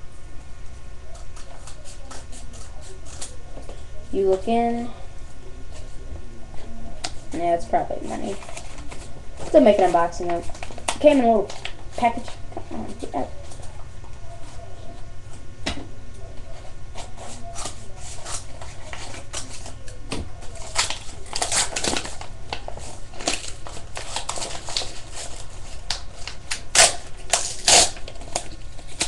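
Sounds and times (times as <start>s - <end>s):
paper and packaging crinkling: 7.0s - 13.8s, 16.4s - 29.0s.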